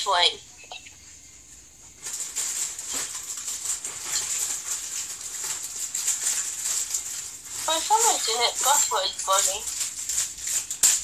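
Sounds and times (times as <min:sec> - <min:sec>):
kitchen items rustling and rattling: 0:01.6 - 0:11.0.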